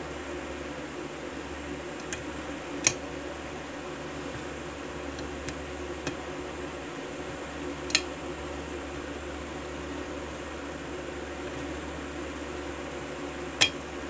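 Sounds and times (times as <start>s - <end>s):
steady background hum: 0.0s - 14.0s.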